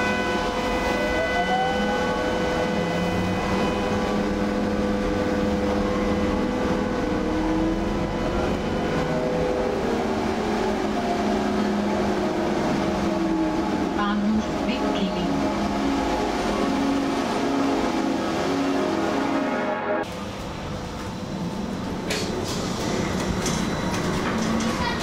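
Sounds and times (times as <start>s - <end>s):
bus cabin rumble: 20.1s - 25.0s.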